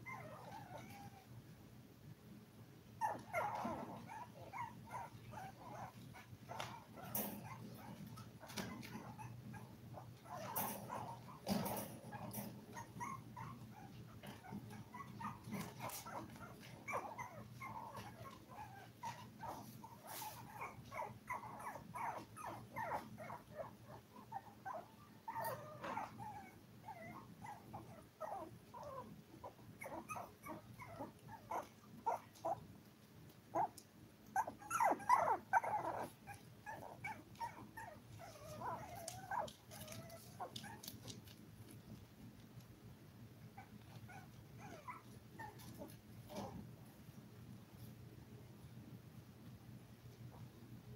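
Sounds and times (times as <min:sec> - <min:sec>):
puppies whimpering and squeaking: 0:00.0 - 0:01.3, 0:03.0 - 0:32.6, 0:34.4 - 0:41.2, 0:43.5 - 0:46.6
faint steady hum: 0:00.0 - 0:50.9.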